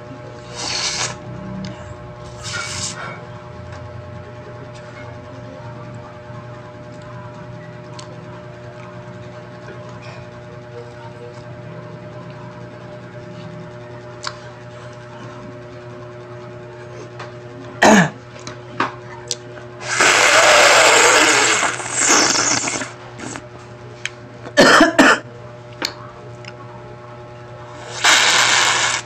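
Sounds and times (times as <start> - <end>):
steady low hum: 0.0 - 29.0
slurping through a straw: 0.4 - 1.2, 2.4 - 3.0, 19.8 - 23.4, 27.8 - 29.0.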